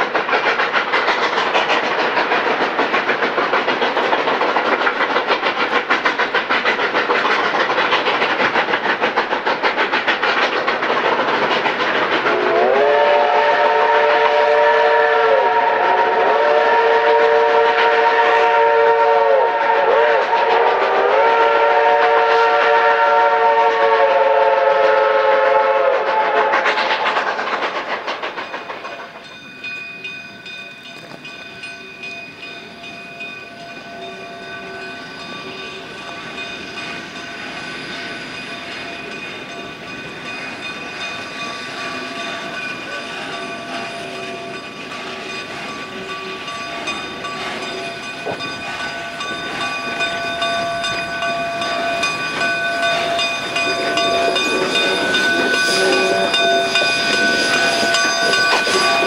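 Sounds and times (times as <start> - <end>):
train running along track: 0.0 - 59.0
steam whistle chord: 12.3 - 26.5.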